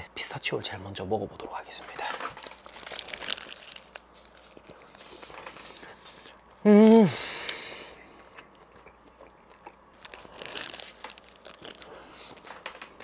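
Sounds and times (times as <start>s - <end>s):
paper wrapper crinkling: 1.8s - 7.0s, 10.0s - 13.0s
biting and chewing: 1.8s - 13.0s
man's wordless exclamation: 6.6s - 7.2s.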